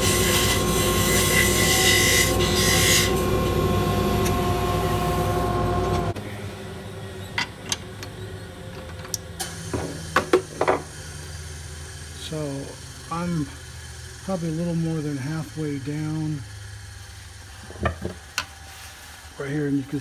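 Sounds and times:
lathe motor hum: 0:00.0 - 0:09.3, 0:10.6 - 0:20.0.

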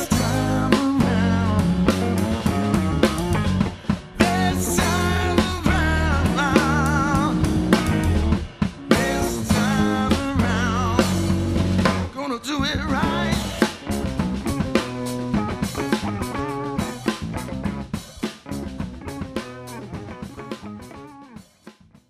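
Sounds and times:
person singing with vibrato: 0:00.0 - 0:02.5, 0:03.8 - 0:07.9, 0:08.9 - 0:11.4, 0:12.1 - 0:13.8
funk rock band playing: 0:00.0 - 0:22.0.

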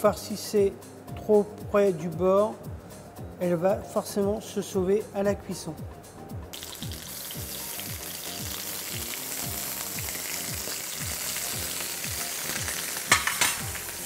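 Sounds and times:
food sizzling in hot oil: 0:06.5 - 0:14.0.

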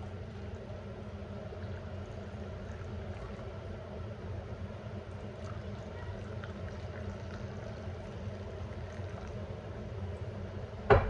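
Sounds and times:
hot drink pouring into cup: 0:01.3 - 0:03.8, 0:05.0 - 0:09.9.

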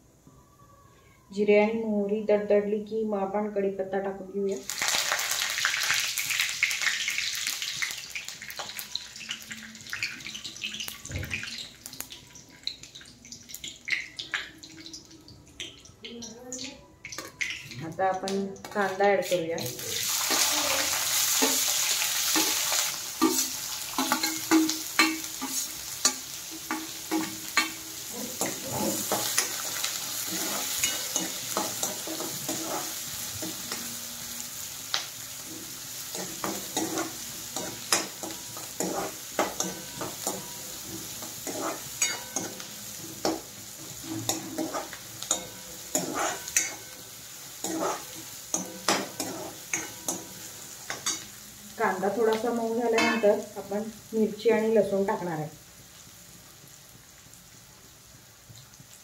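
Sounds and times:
onion sizzling in hot oil: 0:01.3 - 0:59.0
steel spoon scraping a pan: 0:21.2 - 0:33.9, 0:36.1 - 0:51.3.

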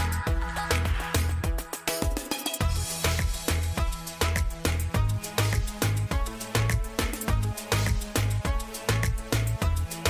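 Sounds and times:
dance music with heavy bass: 0:00.0 - 0:10.0.

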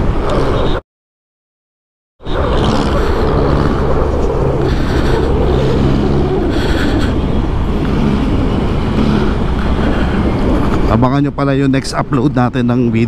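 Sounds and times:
wind and road rumble: 0:00.0 - 0:00.8, 0:02.2 - 0:13.0
scooter engine running: 0:02.3 - 0:10.9.

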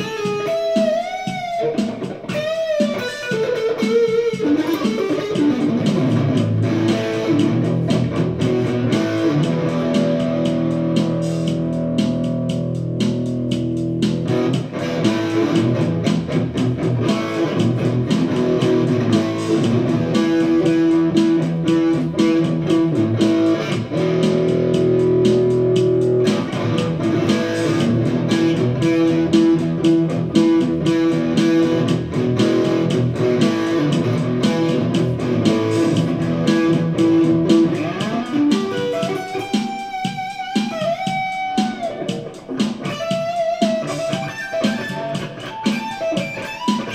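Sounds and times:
electric guitar through amplifier: 0:00.0 - 0:46.9
steady beat: 0:00.0 - 0:46.9.

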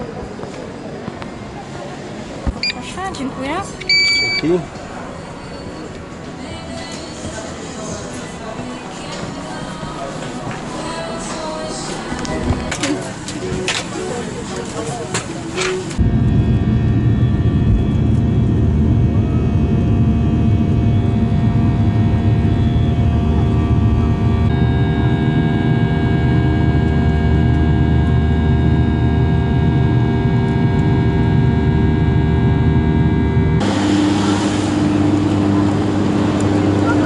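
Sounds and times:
jet engines rumbling and whining: 0:12.4 - 0:37.0
outdoor wind noise: 0:15.5 - 0:37.0
low hum: 0:16.0 - 0:37.0.

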